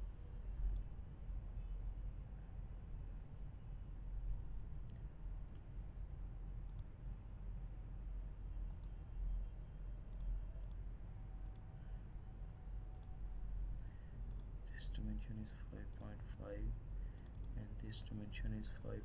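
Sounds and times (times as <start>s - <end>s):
low steady hum: 0.0s - 19.0s
computer mouse clicking: 6.7s - 6.9s, 8.7s - 9.0s, 10.1s - 10.8s, 11.4s - 11.7s, 12.9s - 13.2s, 13.8s - 14.5s, 17.2s - 17.6s.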